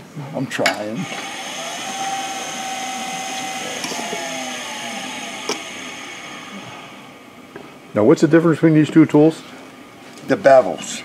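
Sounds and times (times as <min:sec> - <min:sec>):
wood lathe buzzing whine: 0:01.0 - 0:07.4.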